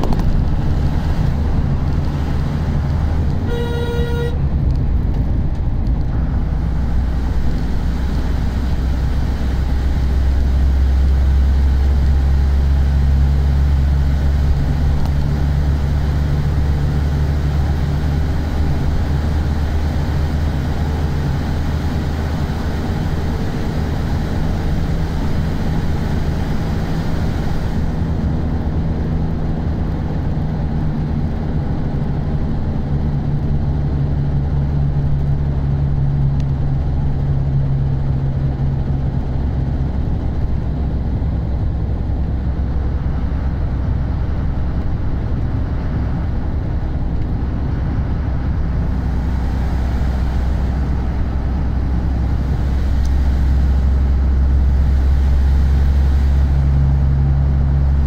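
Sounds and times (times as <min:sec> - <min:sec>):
vehicle engine and road rumble: 0:00.0 - 0:58.0
short horn toot: 0:03.4 - 0:04.5.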